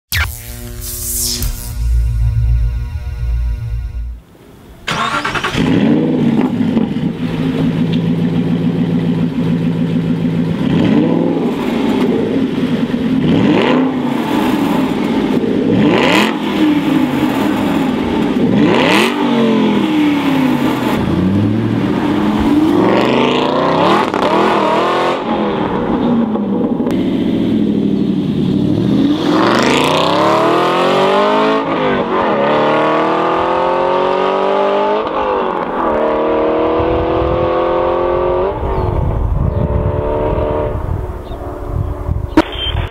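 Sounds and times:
car engine revving: 0:00.1 - 0:38.7
car engine starting: 0:00.1 - 0:41.2
car engine idling: 0:02.0 - 0:10.8, 0:11.6 - 0:13.2.

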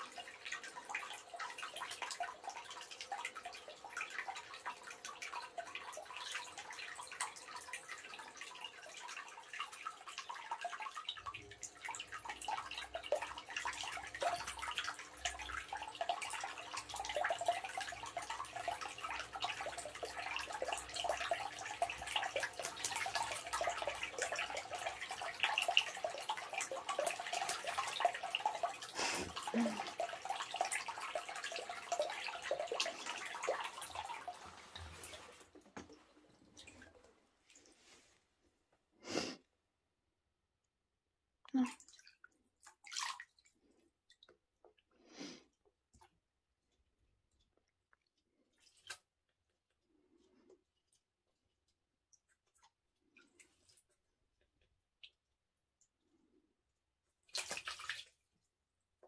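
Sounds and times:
water splashing and dripping: 0:00.0 - 0:37.8, 0:41.5 - 0:45.0, 0:45.9 - 0:49.1, 0:57.2 - 0:58.2
low rumble of running water: 0:00.0 - 0:38.8.

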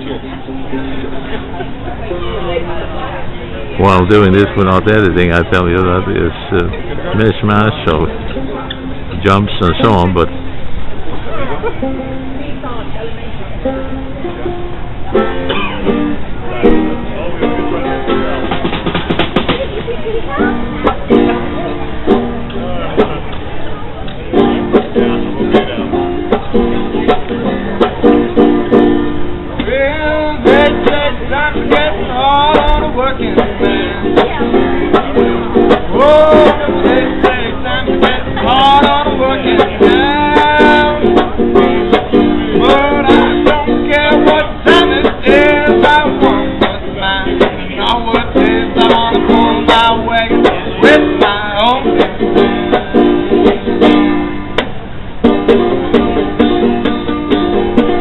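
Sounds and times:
banjo strumming: 0:00.0 - 0:02.7, 0:03.7 - 0:12.9, 0:13.5 - 0:23.6, 0:24.2 - 0:58.0
man singing: 0:03.8 - 0:08.1, 0:29.6 - 0:34.9, 0:35.7 - 0:53.6.

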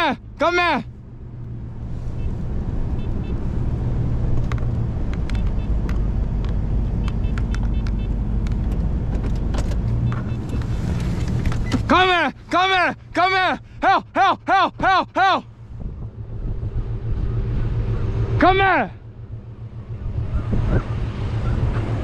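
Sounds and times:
truck engine pulling: 0:00.0 - 0:22.0
tyre and road noise: 0:00.0 - 0:22.0
light clicks and rattles: 0:04.3 - 0:11.9.

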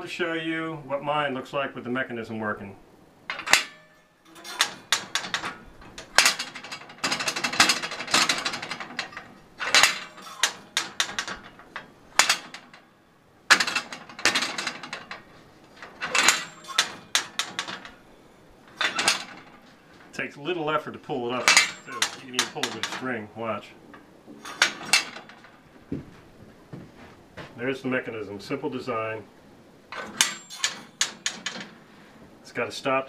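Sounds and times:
steel target plate clanking: 0:03.3 - 0:20.2, 0:21.0 - 0:25.9, 0:29.9 - 0:31.9.

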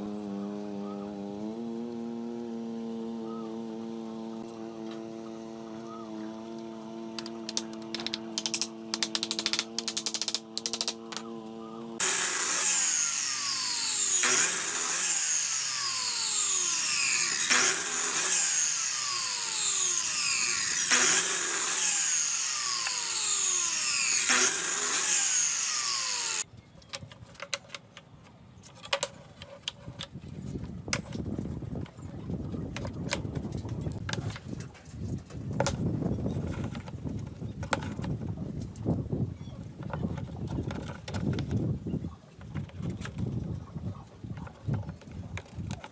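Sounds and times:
miter saw cutting wood: 0:00.0 - 0:26.5
hammer tapping nails into wood: 0:07.2 - 0:11.3.

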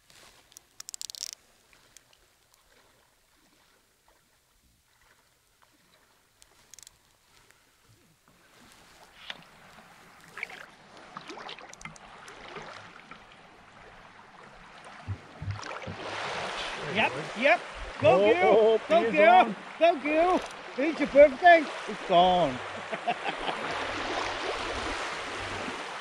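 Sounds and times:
water sloshing and splashing: 0:00.1 - 0:26.0
small clicks: 0:00.4 - 0:02.6, 0:06.4 - 0:07.2, 0:11.6 - 0:12.4, 0:20.3 - 0:20.6.

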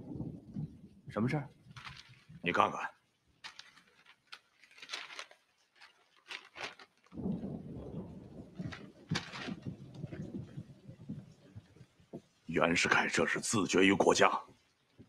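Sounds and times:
newspaper rustling: 0:01.7 - 0:02.7, 0:03.4 - 0:07.4, 0:08.6 - 0:10.3
low rumbling noise: 0:07.2 - 0:12.2.

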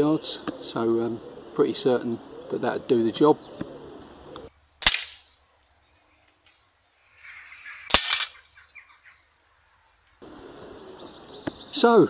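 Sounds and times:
air rifle cracks: 0:04.8 - 0:05.3, 0:07.9 - 0:08.4.

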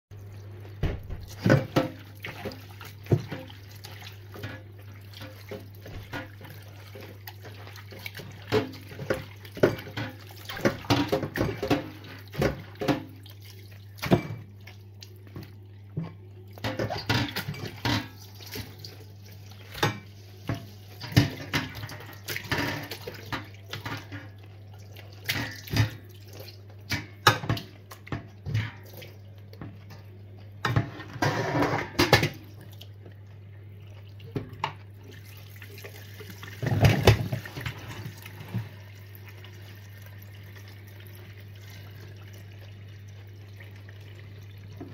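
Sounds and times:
tap water splashing in steel sink: 0:00.7 - 0:30.0, 0:34.2 - 0:42.7
metal pot and colander clanking: 0:08.2 - 0:13.2, 0:16.6 - 0:18.8, 0:30.6 - 0:32.4, 0:36.6 - 0:38.8.

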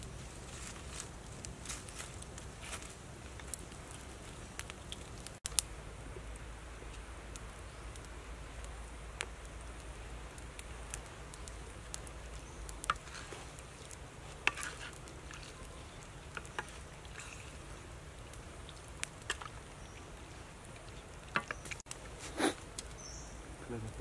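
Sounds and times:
low steady hiss: 0:00.0 - 0:24.0.

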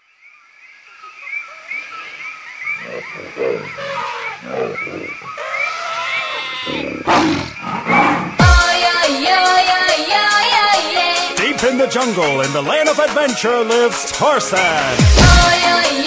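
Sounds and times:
low animal calls: 0:01.0 - 0:08.4
electronic dance-pop music: 0:08.4 - 0:16.0.

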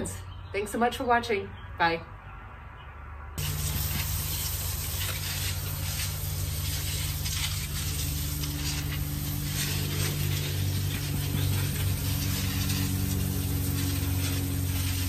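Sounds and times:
hose nozzle spraying water: 0:03.4 - 0:15.0
steady low hum: 0:03.4 - 0:15.0.

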